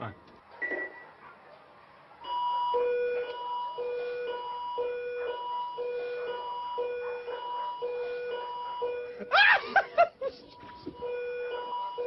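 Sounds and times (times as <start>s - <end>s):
patient monitor two-tone alarm beep: 0.6s - 1.0s, 2.2s - 9.3s, 10.6s - 12.0s.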